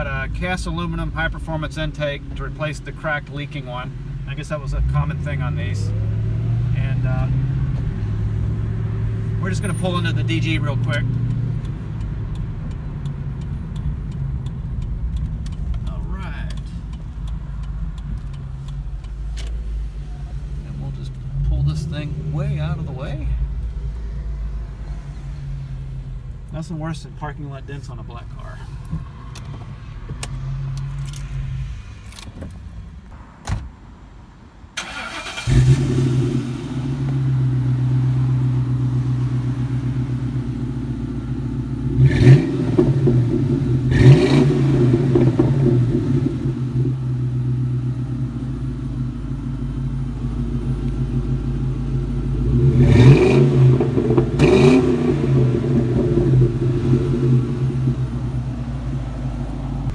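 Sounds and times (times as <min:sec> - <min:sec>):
car engine idling: 0:00.0 - 0:33.2, 0:34.8 - 0:59.9
car engine starting: 0:00.0 - 0:33.8, 0:34.6 - 0:59.9
engine throttle blips: 0:34.8 - 0:59.9.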